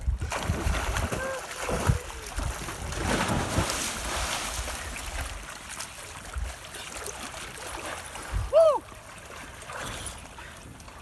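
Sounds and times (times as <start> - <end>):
wind rumbling on microphone: 0.0 - 5.4
water splashing from swimming: 0.0 - 11.0.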